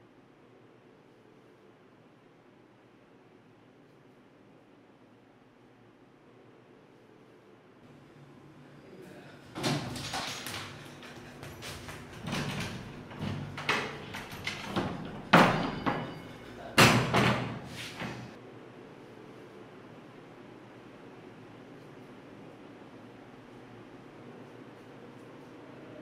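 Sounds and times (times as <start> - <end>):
door being banged and knocked: 9.6 - 18.3.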